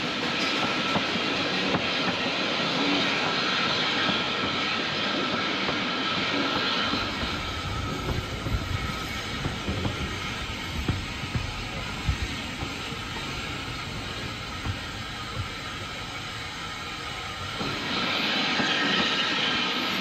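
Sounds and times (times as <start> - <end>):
train carriage rattling on track: 0.0 - 20.0
deep uneven rumble: 6.9 - 17.9.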